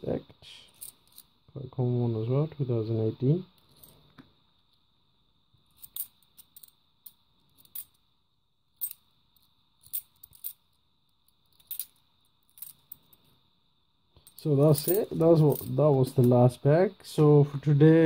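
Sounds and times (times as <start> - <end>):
coins clinking: 5.7 - 8.0, 8.8 - 10.7, 11.3 - 13.2, 14.2 - 16.4.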